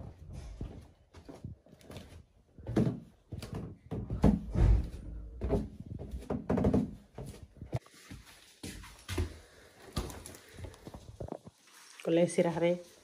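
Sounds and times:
irregular knocks and thuds: 2.6 - 7.8.

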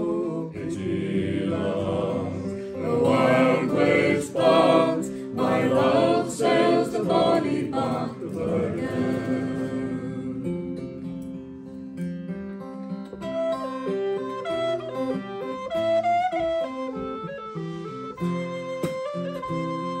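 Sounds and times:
folk group singing in harmony: 0.0 - 11.2
strummed acoustic guitar: 0.0 - 20.0.

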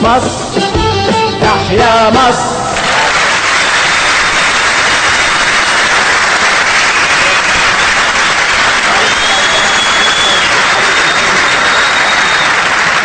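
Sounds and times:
audience applauding: 2.8 - 13.0.

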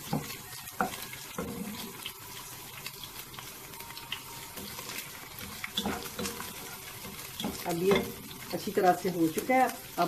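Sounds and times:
wooden spatula scraping a pan: 0.0 - 2.1, 4.6 - 8.5
chicken sizzling in a pan: 0.0 - 10.0.

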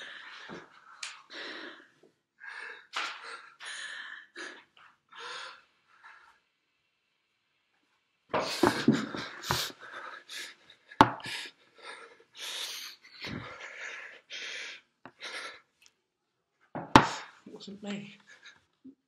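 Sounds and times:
panicked heavy breathing: 0.0 - 6.4, 8.4 - 15.7.

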